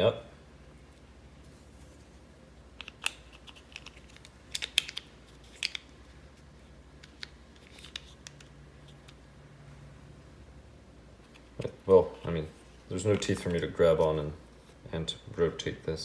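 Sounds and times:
plastic parts clicking: 0:02.8 - 0:05.9.

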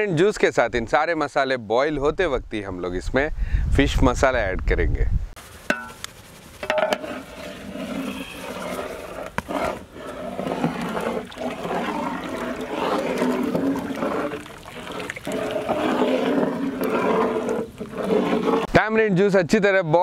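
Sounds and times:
ladle stirring in pot: 0:05.5 - 0:18.7
curry boiling and bubbling: 0:06.6 - 0:18.7.

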